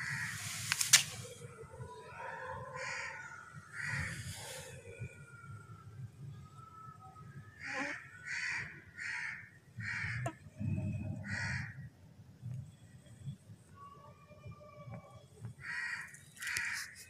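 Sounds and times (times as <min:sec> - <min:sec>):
crow cawing: 0:07.6 - 0:10.4, 0:11.2 - 0:11.8, 0:15.6 - 0:16.9.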